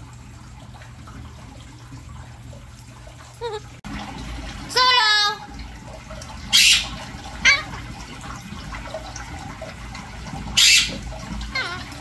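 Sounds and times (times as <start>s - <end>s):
trickle of running water: 0.0s - 12.0s
parakeets calling and squawking: 6.5s - 7.8s, 10.5s - 12.0s.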